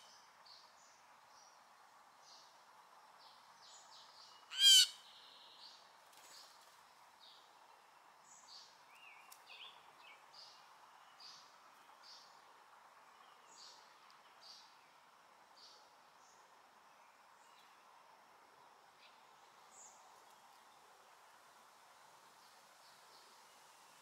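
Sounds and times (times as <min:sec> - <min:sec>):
blue jay harsh call: 0:04.5 - 0:05.3
faint small bird chirps: 0:08.2 - 0:12.3.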